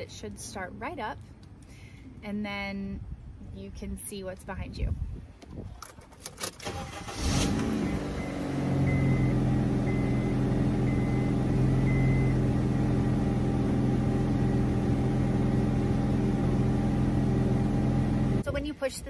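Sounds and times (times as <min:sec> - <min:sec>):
car engine idling: 0:08.2 - 0:18.4.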